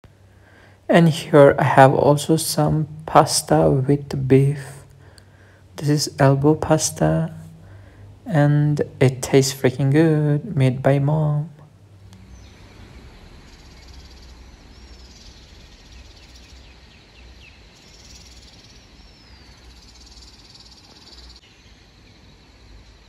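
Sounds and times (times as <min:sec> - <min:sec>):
steady hiss and low rumble: 0:00.0 - 0:23.0
high insect-like buzz: 0:12.2 - 0:16.7.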